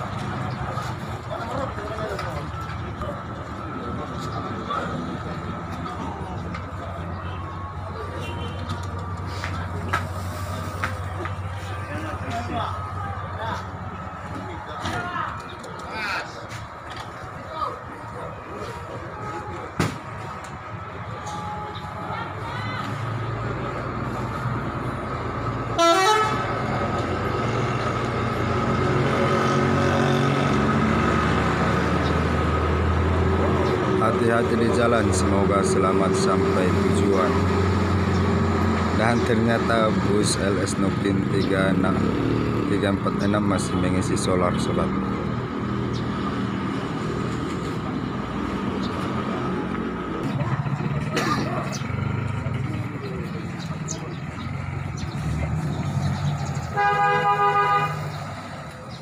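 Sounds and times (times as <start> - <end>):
bus diesel engine running: 0.0 - 59.0
bus horn toot: 8.2 - 8.7, 25.7 - 26.6, 56.7 - 58.2
bus diesel engine idling: 47.5 - 59.0.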